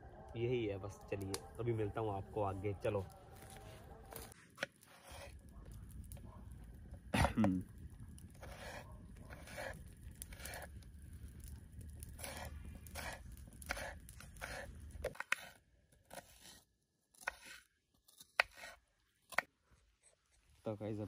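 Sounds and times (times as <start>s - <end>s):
knife cutting on wooden board: 4.1s - 5.4s, 8.4s - 10.7s, 12.2s - 19.5s.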